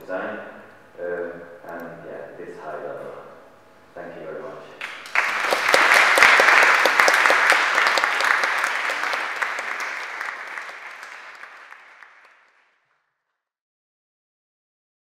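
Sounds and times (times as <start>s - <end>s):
audience applauding: 4.8s - 12.8s.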